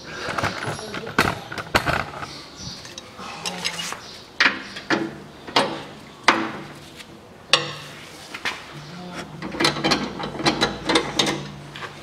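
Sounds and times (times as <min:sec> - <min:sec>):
wrench clanking on metal: 0:09.3 - 0:11.6.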